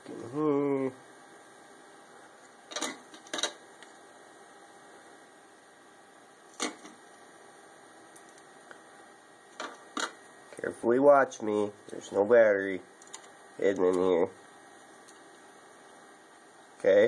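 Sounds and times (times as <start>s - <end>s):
faint steady hum: 0.0s - 17.0s.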